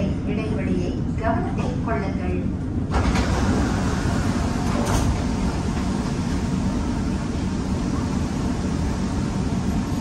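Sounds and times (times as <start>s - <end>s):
moving vehicle rumble and hiss: 2.9s - 10.0s.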